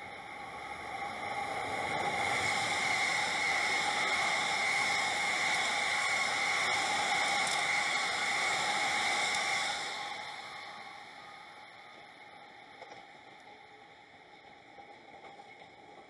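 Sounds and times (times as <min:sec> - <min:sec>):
train wheels on rails: 0:00.0 - 0:16.0.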